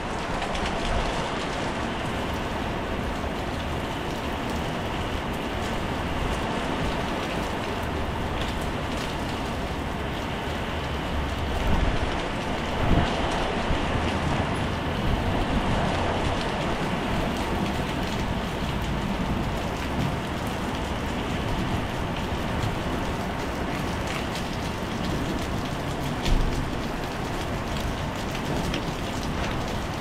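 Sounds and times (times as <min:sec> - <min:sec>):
heavy rain on tiles: 0:00.0 - 0:30.0.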